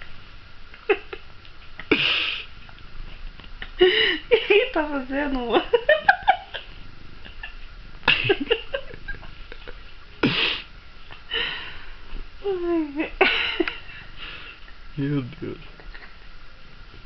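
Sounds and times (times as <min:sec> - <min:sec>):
woman laughing breathily: 0:03.6 - 0:04.7, 0:05.7 - 0:10.6, 0:11.3 - 0:12.0, 0:13.0 - 0:14.5.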